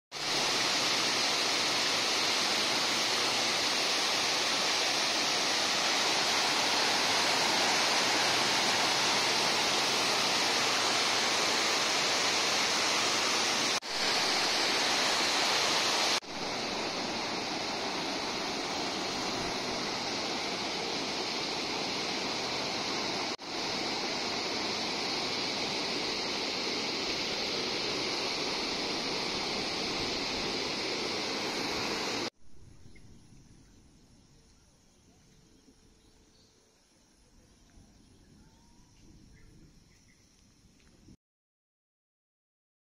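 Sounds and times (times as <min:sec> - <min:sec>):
waterfall rushing: 0:00.2 - 0:32.3.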